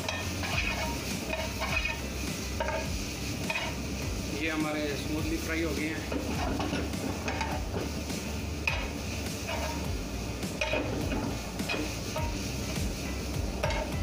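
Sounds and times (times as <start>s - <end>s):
spatula clinking against pan: 0.0s - 2.0s, 10.6s - 11.0s, 13.6s - 14.0s
metal spatula scraping: 0.0s - 4.1s, 5.0s - 14.0s
food sizzling in a wok: 0.0s - 14.0s.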